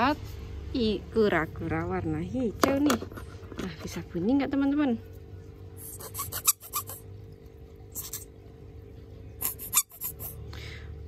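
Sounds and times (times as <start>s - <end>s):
squeaky toy hissy puffs: 5.8s - 7.0s, 9.4s - 10.4s.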